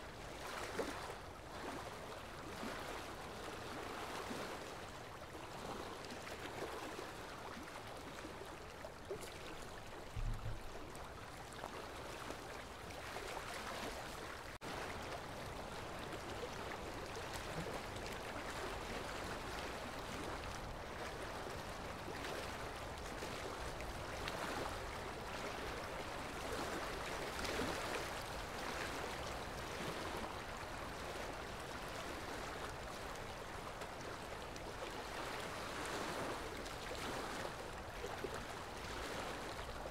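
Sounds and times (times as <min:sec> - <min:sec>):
running water rushing: 0:04.5 - 0:39.9
low thump: 0:10.2 - 0:10.8.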